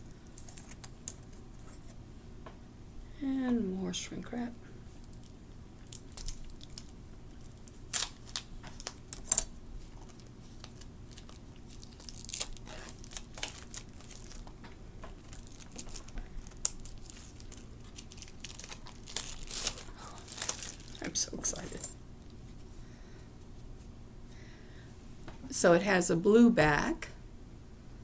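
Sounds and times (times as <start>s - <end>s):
plastic shrink wrap crinkling: 0.2s - 1.9s, 5.0s - 22.0s.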